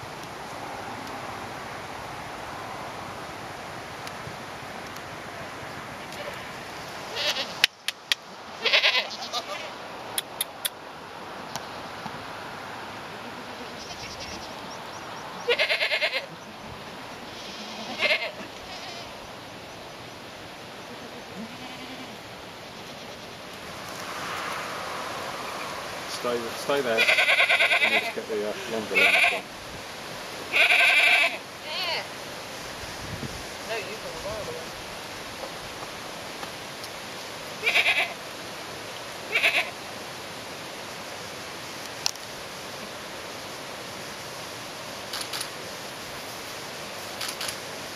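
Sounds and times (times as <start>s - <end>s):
goats bleating: 7.1s - 7.5s, 8.6s - 9.7s, 15.5s - 16.3s, 17.4s - 19.1s, 21.4s - 22.2s, 26.9s - 29.4s, 30.5s - 32.0s, 37.6s - 38.2s, 39.3s - 39.7s.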